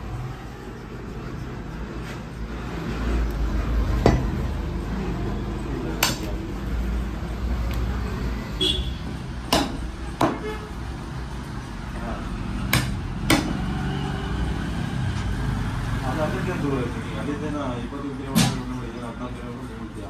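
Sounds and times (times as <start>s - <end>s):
cleaver chopping on wooden block: 4.0s - 4.3s, 9.5s - 10.4s, 12.7s - 13.6s.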